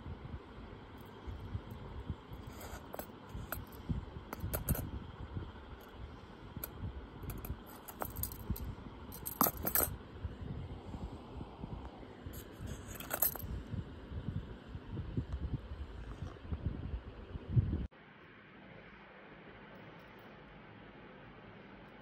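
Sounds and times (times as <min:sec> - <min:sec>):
metal bangles clinking: 0:02.4 - 0:04.9, 0:06.6 - 0:10.0, 0:12.4 - 0:13.5.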